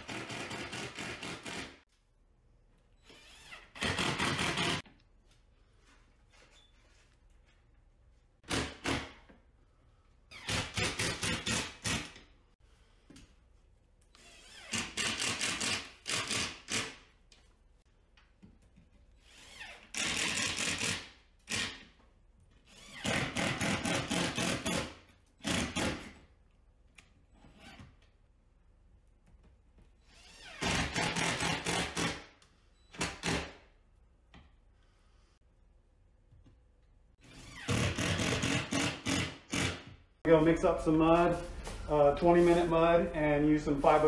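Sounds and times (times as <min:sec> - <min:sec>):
impact driver hammering screws: 0:00.0 - 0:01.8, 0:03.7 - 0:04.8, 0:08.4 - 0:09.3, 0:10.4 - 0:12.2, 0:14.7 - 0:17.0, 0:19.8 - 0:21.9, 0:22.8 - 0:26.2, 0:30.6 - 0:32.3, 0:32.9 - 0:33.6, 0:37.3 - 0:40.0.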